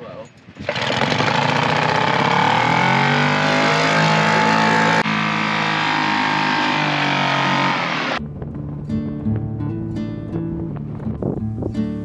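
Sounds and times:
outboard motor running at full throttle: 0:00.6 - 0:08.2.

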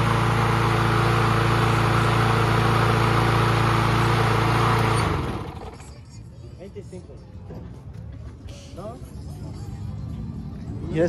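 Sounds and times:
lawn mower engine running: 0:00.0 - 0:06.0.

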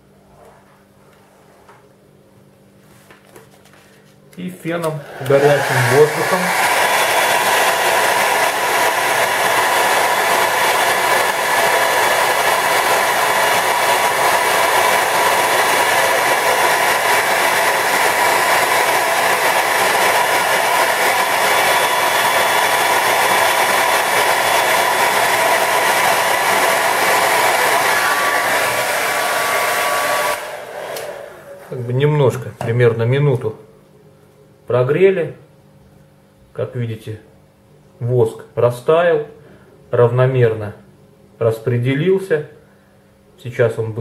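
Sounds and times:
hair dryer blowing: 0:04.8 - 0:32.1.

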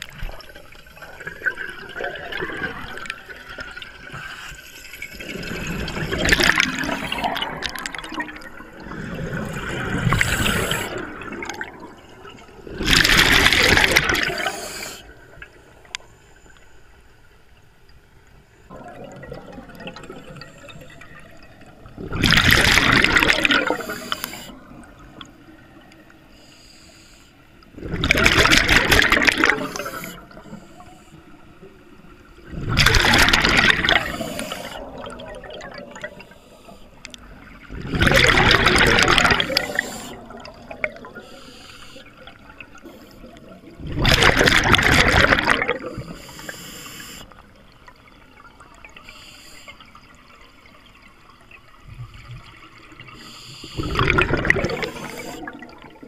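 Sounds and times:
exhaled bubbles rushing underwater: 0:00.0 - 0:16.0, 0:18.6 - 0:26.4, 0:27.7 - 0:56.0
regulator hiss on inhalation: 0:10.2 - 0:11.0, 0:14.4 - 0:15.1, 0:23.8 - 0:24.7, 0:26.3 - 0:27.4, 0:34.1 - 0:34.8, 0:39.5 - 0:40.3, 0:41.2 - 0:42.2, 0:46.1 - 0:47.4, 0:49.0 - 0:49.9, 0:53.2 - 0:54.0, 0:54.8 - 0:55.5.

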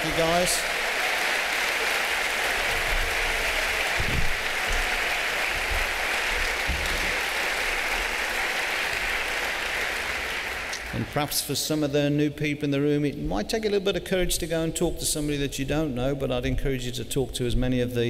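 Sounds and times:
large audience applauding: 0:00.0 - 0:11.2.

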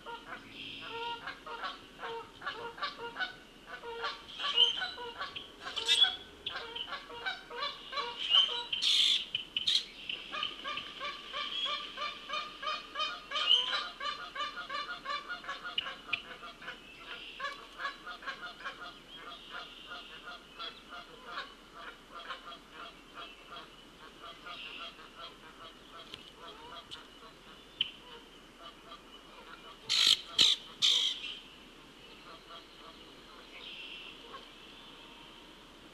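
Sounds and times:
geese honking: 0:00.0 - 0:31.3.

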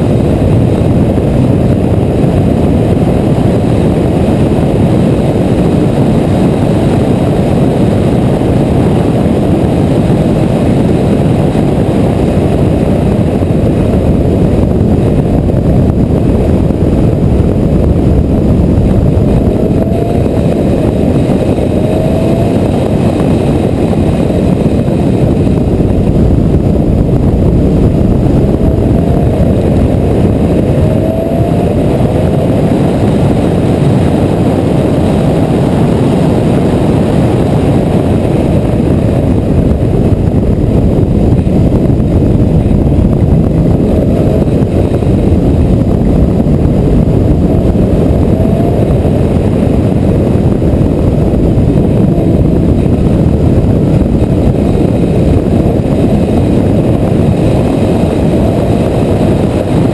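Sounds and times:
wind and road noise: 0:00.0 - 0:59.9
car engine revving hard: 0:18.6 - 0:25.1, 0:27.7 - 0:36.8, 0:47.4 - 0:49.7.

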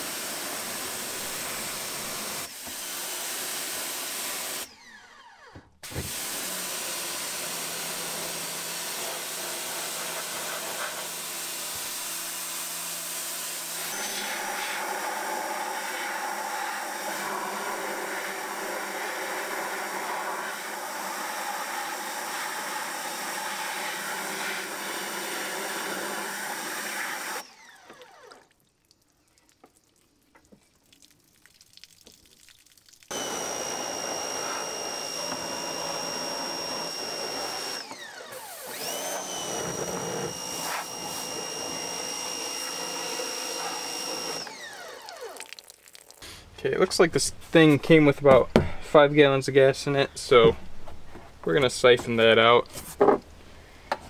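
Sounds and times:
pressure washer spraying water: 0:00.0 - 0:04.7, 0:05.8 - 0:27.5, 0:33.1 - 0:45.6.

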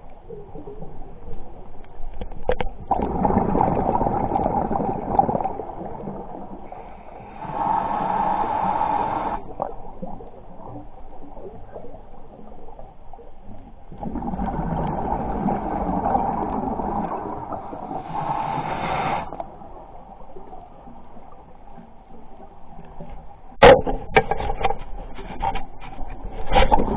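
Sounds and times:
muffled underwater noise: 0:03.0 - 0:23.0.

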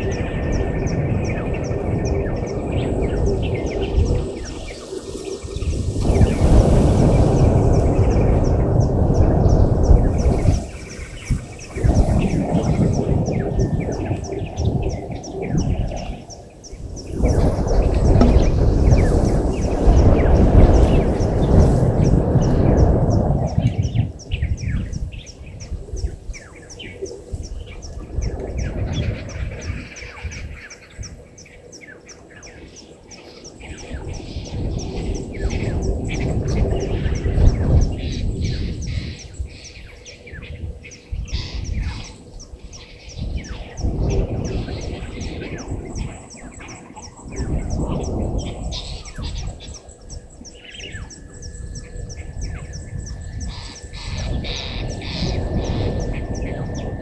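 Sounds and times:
low rumbling noise: 0:00.0 - 0:26.2, 0:40.3 - 0:57.0
bird calls: 0:00.0 - 0:57.0.

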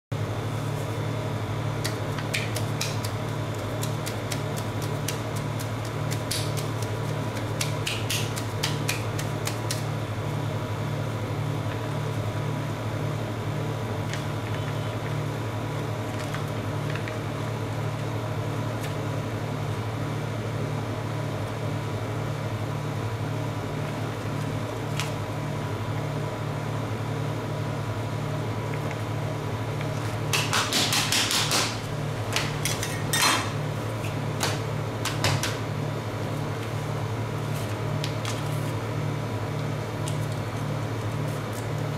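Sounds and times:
refrigeration unit humming: 0:00.1 - 0:41.9.

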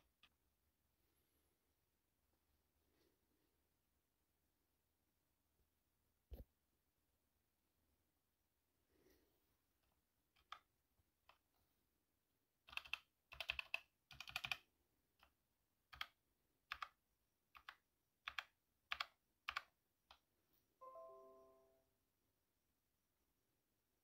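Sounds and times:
typing on mechanical keyboard: 0:10.3 - 0:11.4, 0:12.6 - 0:20.2.

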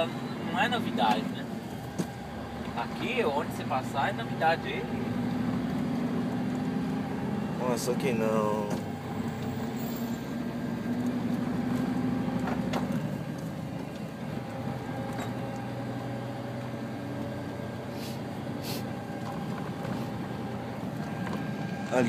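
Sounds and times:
vehicle engine and road noise: 0:00.0 - 0:22.0.

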